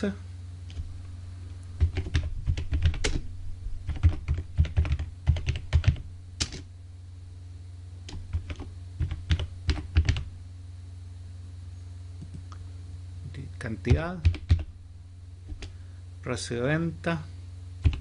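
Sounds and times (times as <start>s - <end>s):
steady low hum: 0.0s - 18.0s
computer keyboard typing: 1.8s - 6.6s, 8.1s - 10.3s, 13.9s - 14.7s, 15.5s - 15.7s, 17.8s - 18.0s.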